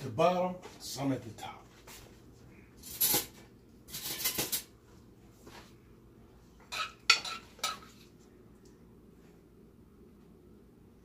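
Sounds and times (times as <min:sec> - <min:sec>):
utensil clinking on skillet: 0:06.7 - 0:07.9
metal utensil scraping skillet: 0:06.7 - 0:08.0.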